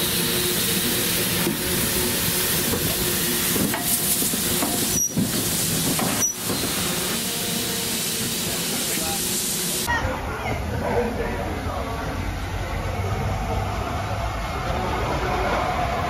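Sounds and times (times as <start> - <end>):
steam locomotive hissing: 0.0 - 9.9.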